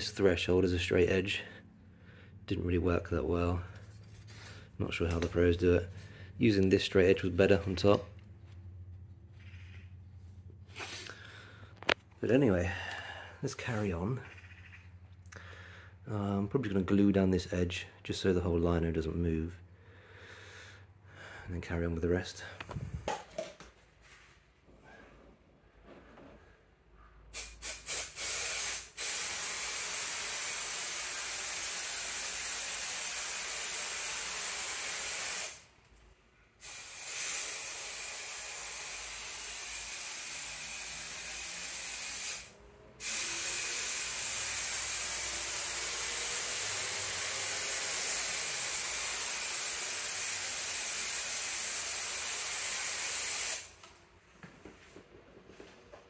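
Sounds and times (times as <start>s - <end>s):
aerosol spray hissing: 27.4s - 35.6s, 47.1s - 53.8s.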